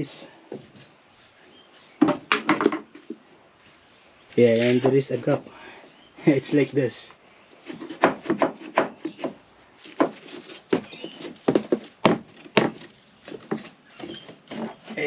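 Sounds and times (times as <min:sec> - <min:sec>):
wooden panels knocking: 0:02.0 - 0:03.2, 0:07.7 - 0:15.0.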